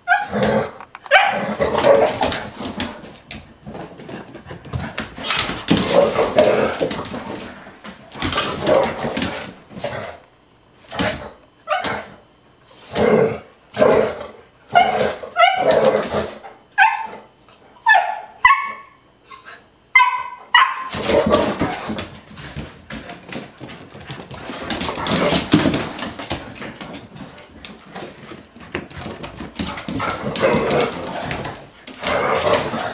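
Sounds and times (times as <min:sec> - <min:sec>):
dogs growling roughly: 0:00.2 - 0:03.0, 0:04.8 - 0:10.3, 0:12.9 - 0:16.4, 0:29.6 - 0:32.9
dogs barking and yipping: 0:16.8 - 0:21.0.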